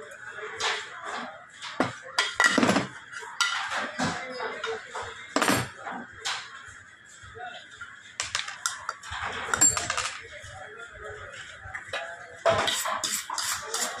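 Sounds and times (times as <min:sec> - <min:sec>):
metal lid clinks and knocks: 0:08.3 - 0:10.2.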